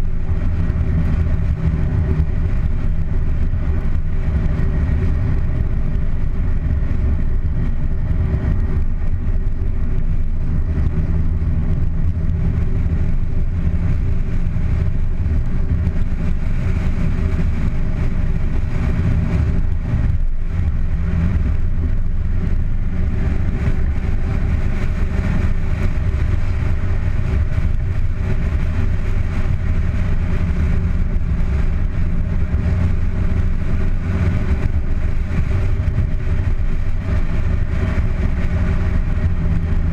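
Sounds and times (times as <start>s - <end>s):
car engine running: 0.0s - 39.9s
tyre and road noise: 0.0s - 39.9s.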